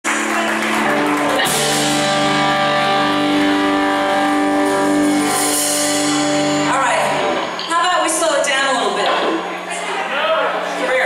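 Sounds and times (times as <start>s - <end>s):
live band holding final chord: 0.1s - 11.0s.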